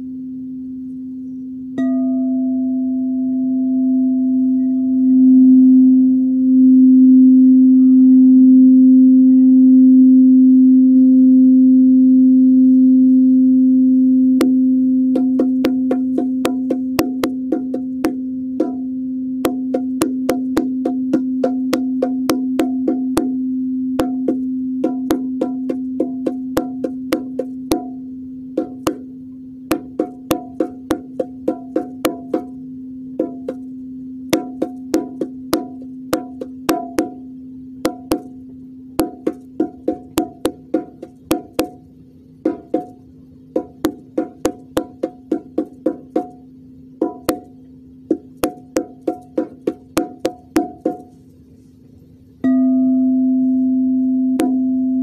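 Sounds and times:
singing bowl humming: 0.0s - 55.0s
sharp percussion taps: 14.4s - 23.4s, 24.0s - 28.0s, 28.6s - 29.1s, 29.7s - 32.6s, 33.2s - 33.7s, 34.3s - 38.4s, 39.0s - 51.2s, 54.4s - 54.7s.

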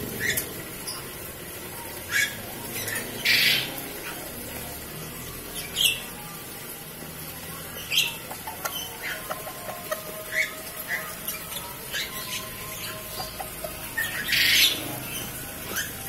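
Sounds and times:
squeaky bird calls: 7.8s - 16.0s.

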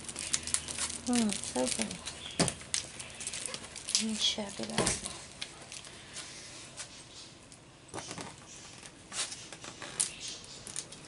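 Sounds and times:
scissors cutting plastic: 0.0s - 5.5s
plastic wrapping crinkling: 0.0s - 6.9s, 8.0s - 11.0s.

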